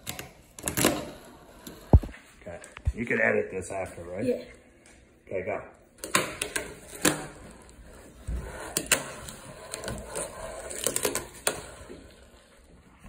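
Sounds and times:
fingerboard wheels rolling on wood: 0:00.0 - 0:02.2, 0:06.0 - 0:13.0.

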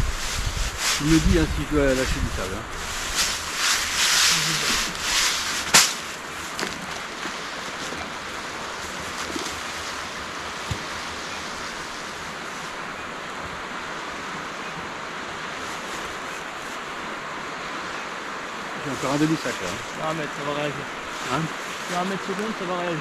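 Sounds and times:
rushing wind: 0:00.0 - 0:23.0
sharp knock: 0:05.7 - 0:06.0.

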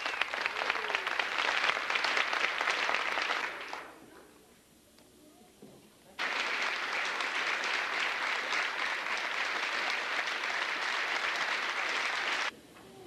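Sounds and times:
audience applauding: 0:00.0 - 0:03.9, 0:06.2 - 0:12.5.

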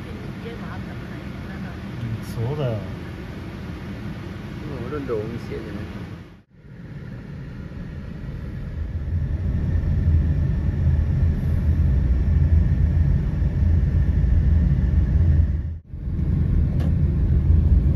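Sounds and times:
car rumbling in motion: 0:08.4 - 0:17.9.

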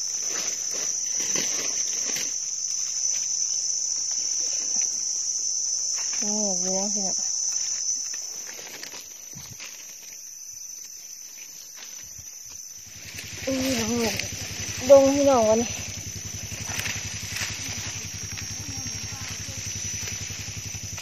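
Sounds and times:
forest insects droning: 0:00.0 - 0:21.0.

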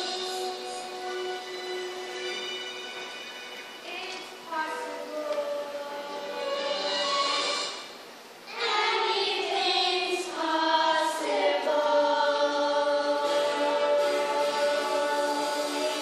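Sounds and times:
children's chorus singing: 0:00.0 - 0:03.1, 0:03.8 - 0:16.0.

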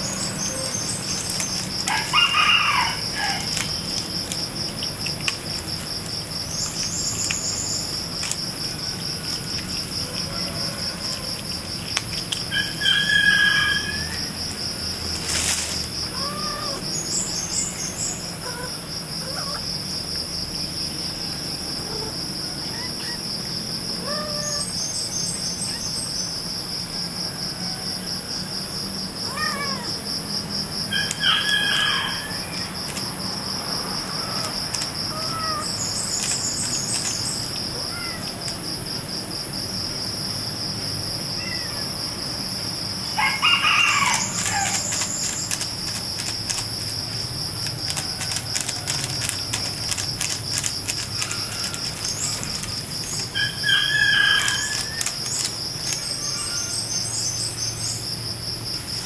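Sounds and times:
cat and kittens mewing: 0:16.0 - 0:17.4, 0:18.2 - 0:19.9, 0:21.3 - 0:24.9, 0:29.2 - 0:30.1, 0:30.9 - 0:38.8, 0:41.2 - 0:56.7.

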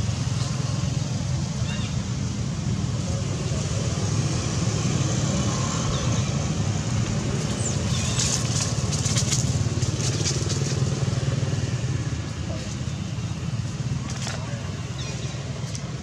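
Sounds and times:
crackling dry leaves: 0:06.9 - 0:16.0.

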